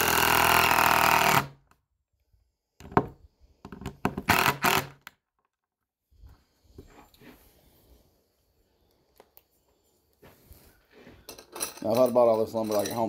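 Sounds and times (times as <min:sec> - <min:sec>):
cordless drill driving screw: 0:00.0 - 0:01.6, 0:04.2 - 0:05.1
short knocks and handling sounds: 0:02.8 - 0:04.3.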